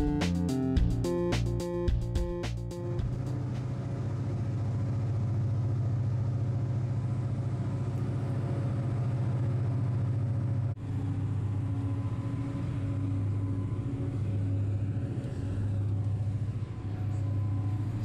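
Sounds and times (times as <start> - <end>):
ferry engines droning: 0.0 - 18.0.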